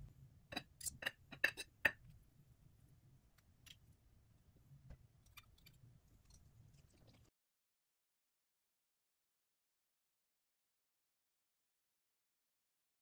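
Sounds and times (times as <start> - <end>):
cutlery clinking on ceramic plate: 0.5 - 2.0.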